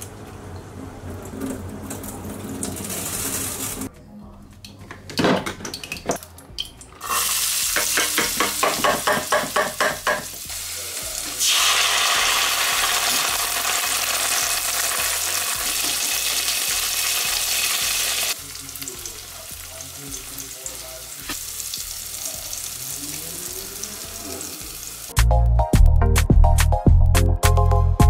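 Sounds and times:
loud steady sizzle: 0:01.2 - 0:03.9, 0:10.3 - 0:25.1
onion frying in oil: 0:01.2 - 0:03.9, 0:07.0 - 0:25.1.

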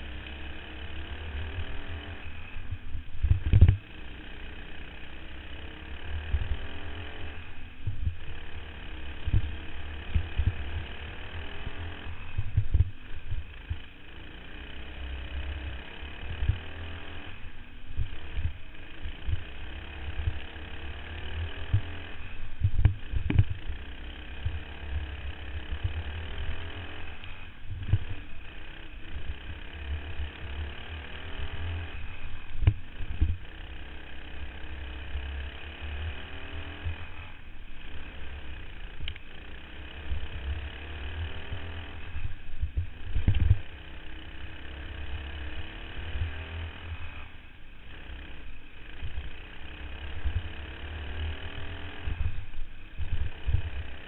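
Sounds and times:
go-kart engine running hard: 0:00.0 - 0:54.0
wind rumble on microphone: 0:02.7 - 0:03.8, 0:12.3 - 0:13.8, 0:22.5 - 0:23.6, 0:42.2 - 0:43.7.

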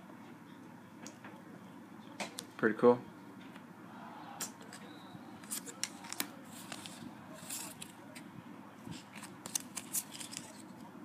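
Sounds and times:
cards and foil wrapper handled: 0:05.4 - 0:08.2, 0:08.9 - 0:10.9.

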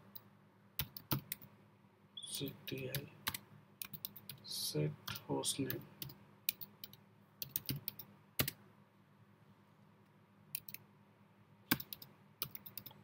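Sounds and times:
computer keyboard typing: 0:00.8 - 0:01.5, 0:02.4 - 0:04.4, 0:05.1 - 0:08.6, 0:10.6 - 0:10.8, 0:11.7 - 0:13.0.

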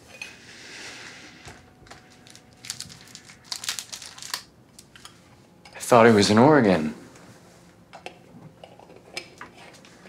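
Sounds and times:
paper tissue crinkling: 0:01.8 - 0:04.5.

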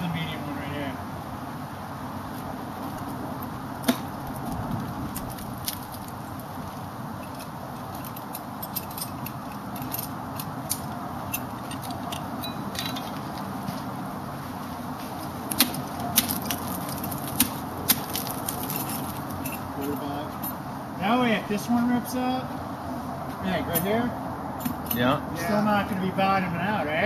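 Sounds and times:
metal climbing hardware clinking: 0:07.1 - 0:13.6, 0:15.5 - 0:20.6.

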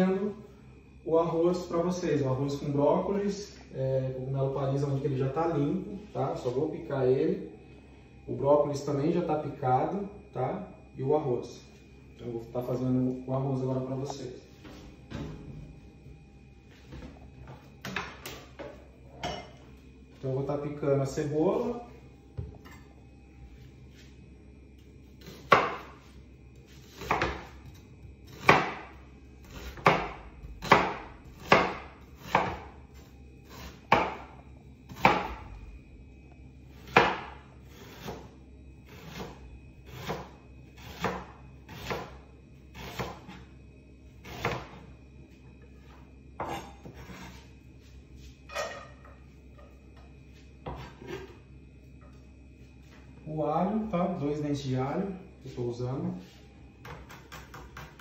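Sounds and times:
knife chopping on plastic board: 0:27.0 - 0:27.5, 0:28.4 - 0:28.9, 0:29.7 - 0:32.7, 0:33.9 - 0:34.3, 0:36.9 - 0:37.4.

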